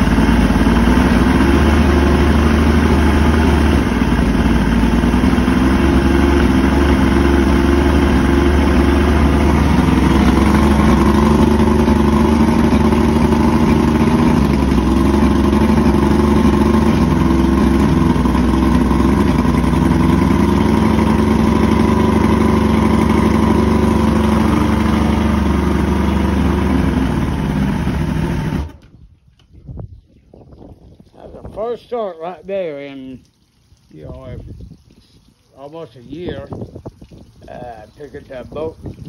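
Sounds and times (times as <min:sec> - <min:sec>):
outboard motor idling: 0:00.0 - 0:29.0
garden hose water: 0:00.0 - 0:29.6, 0:30.4 - 0:39.0.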